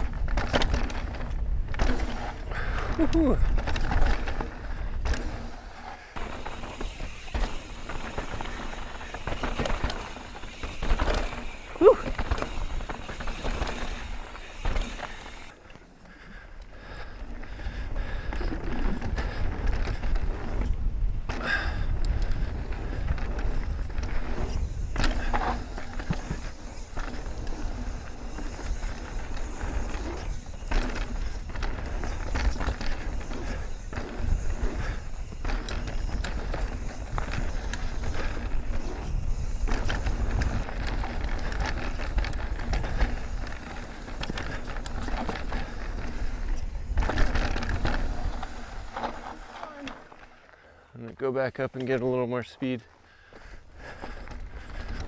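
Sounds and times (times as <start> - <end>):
tyres rumbling on dirt: 0.0 - 15.6, 17.2 - 50.4
bike rattling over bumps: 0.0 - 50.7, 52.9 - 55.0.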